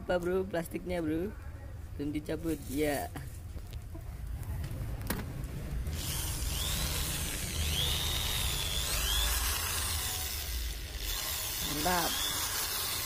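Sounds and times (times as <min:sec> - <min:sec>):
electric drill motor whine: 0:05.9 - 0:13.0.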